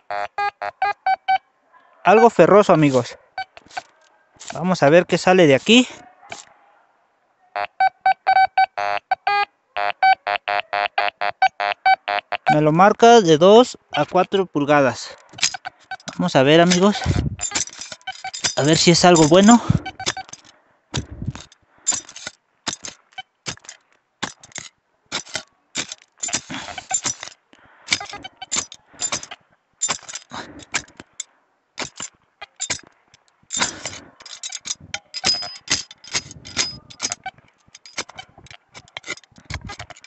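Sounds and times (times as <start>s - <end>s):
metal tool digging into soil: 2.2s - 4.8s, 5.5s - 6.4s, 15.3s - 31.2s, 31.8s - 40.0s.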